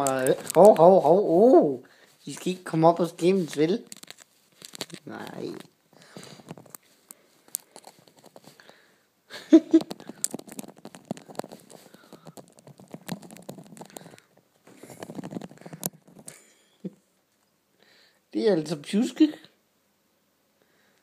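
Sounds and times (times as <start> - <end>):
bird scratching on microphone: 9.8 - 16.4.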